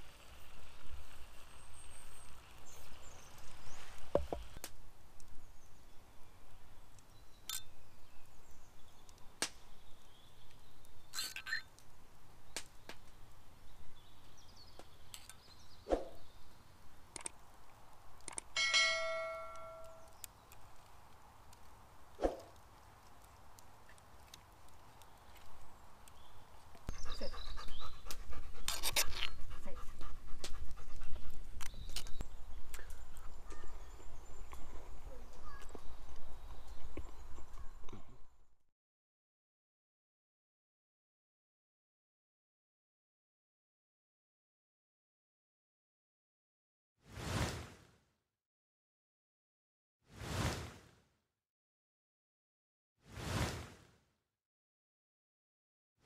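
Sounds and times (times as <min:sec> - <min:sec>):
woodland ambience: 0:00.0 - 0:38.5
dog panting: 0:26.9 - 0:31.5.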